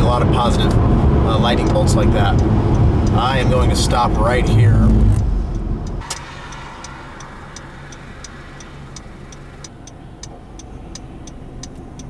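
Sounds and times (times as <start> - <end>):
car engine idling: 0.0 - 12.0
car turn signal clicking: 1.6 - 3.2, 5.5 - 12.0.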